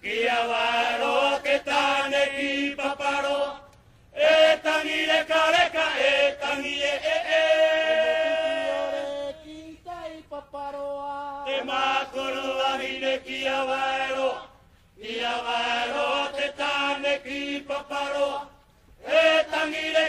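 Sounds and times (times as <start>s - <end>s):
chanted singing with held notes: 0.0s - 20.0s.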